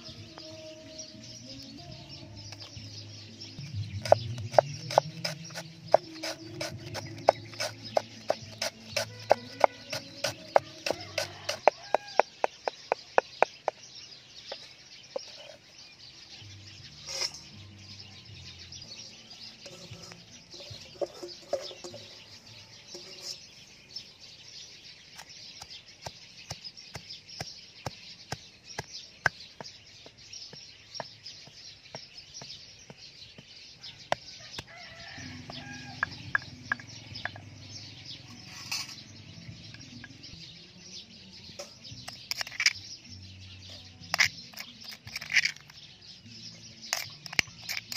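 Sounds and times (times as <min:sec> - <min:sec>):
pestle pounding in stone mortar: 0:03.8 - 0:13.8
cleaver chopping on wooden board: 0:04.0 - 0:13.8.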